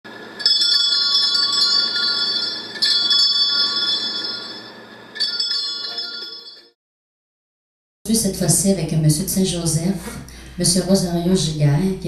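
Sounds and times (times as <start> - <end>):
bells ringing: 0.4 - 6.8.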